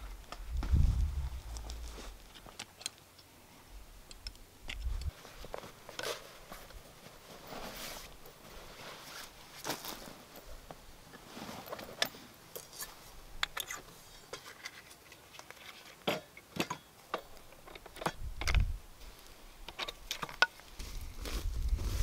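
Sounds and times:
rustling of gear: 0.0 - 3.0, 4.7 - 16.0.

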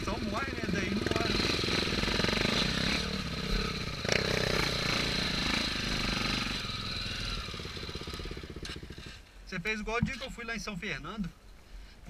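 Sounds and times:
motorcycle engines running: 0.0 - 9.3.

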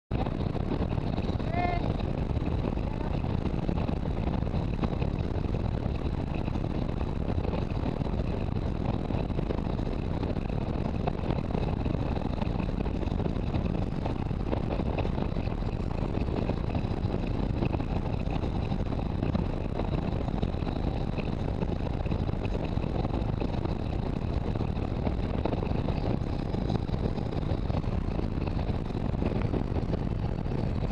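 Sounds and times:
motorcycle engine running: 0.1 - 30.9
wind rushing over microphone: 0.1 - 30.9.

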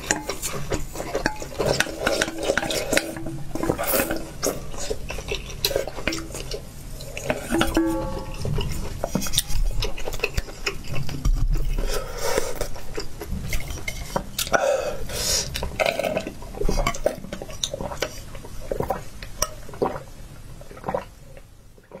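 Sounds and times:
chewing and slurping: 0.0 - 22.0
metallic ring: 7.5 - 8.9.

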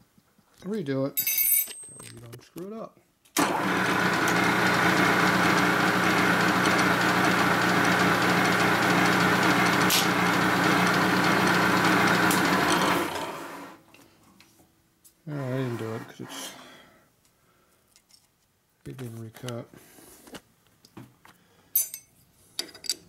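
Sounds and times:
milling machine running: 3.4 - 13.8, 15.5 - 16.3.

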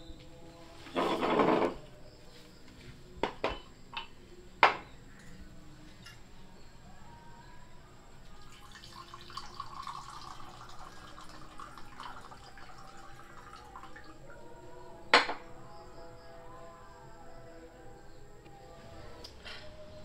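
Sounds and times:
glass set down on wooden board: 3.2 - 4.9, 15.1 - 15.4
water poured into a glass: 8.4 - 14.2.

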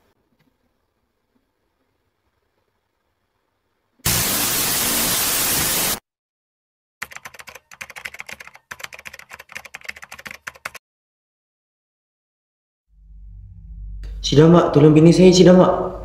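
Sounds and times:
static hiss burst: 4.0 - 6.0
keyboard typing clicks: 7.0 - 10.8.

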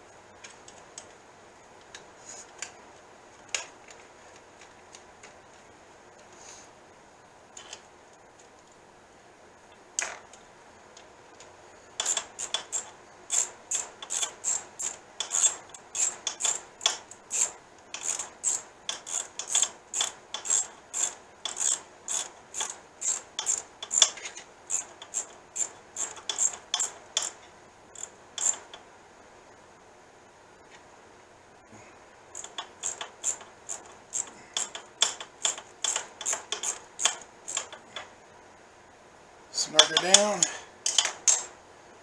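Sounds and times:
ratchet wrench clicking: 12.0 - 27.4, 28.0 - 28.7, 32.4 - 37.8.

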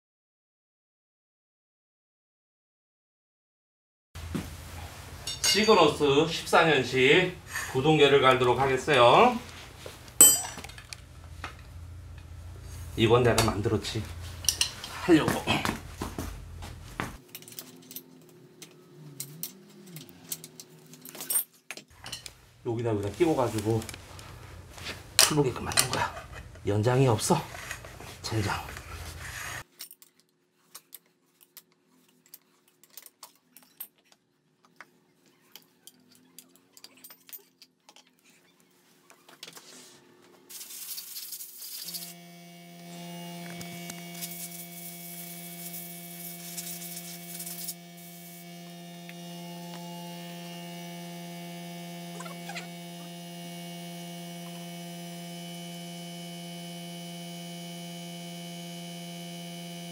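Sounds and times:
metal tools clinking: 5.2 - 6.0, 10.2 - 11.0, 14.2 - 15.1, 17.2 - 22.3, 35.5 - 38.4
electrical hum with hiss: 41.8 - 59.9.

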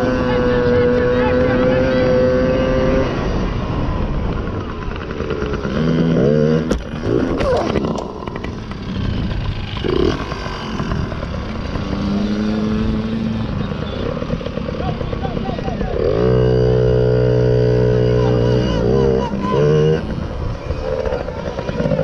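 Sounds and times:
wind rumble on microphone: 0.0 - 16.1
motorbike engine revving: 0.0 - 22.0.

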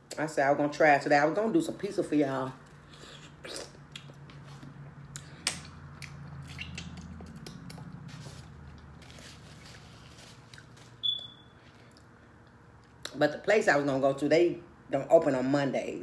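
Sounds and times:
person chewing with wet smacks: 2.7 - 8.9
short high-pitched squeak: 11.0 - 11.6.

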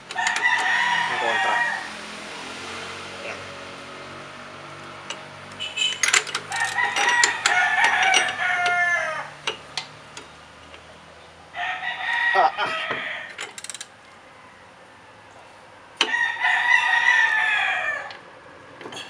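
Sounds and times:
wrench clicking: 0.0 - 0.8, 5.0 - 10.9, 13.3 - 13.9
rooster crowing: 0.2 - 2.2, 6.5 - 9.4, 11.5 - 15.2, 16.0 - 18.2.

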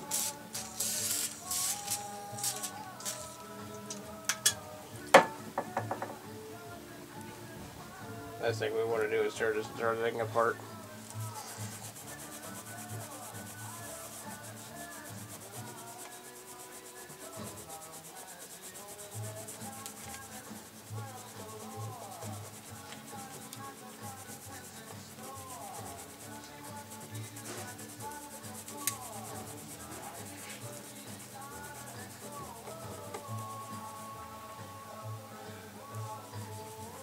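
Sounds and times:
scrubbing on metal plate: 11.0 - 34.1.

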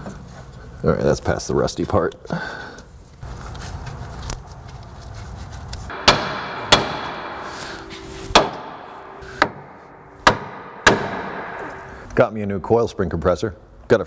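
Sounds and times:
metallic ring: 5.9 - 10.2
hammer blows on steel: 5.9 - 12.1.

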